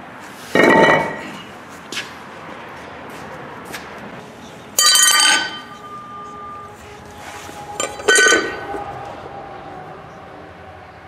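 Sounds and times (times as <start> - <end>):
metal discs clanking on concrete: 0.5 - 1.5, 4.7 - 6.8, 7.5 - 8.8.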